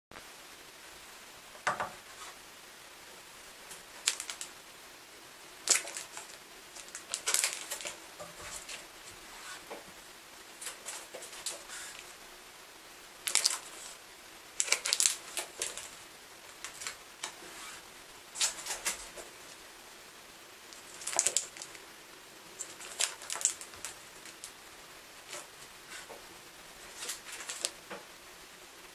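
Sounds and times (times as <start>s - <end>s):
paper rustling: 3.7s - 4.5s, 5.6s - 9.9s, 10.6s - 12.1s, 13.2s - 14.0s, 14.6s - 19.5s, 20.8s - 21.8s, 22.5s - 24.6s, 26.8s - 28.0s.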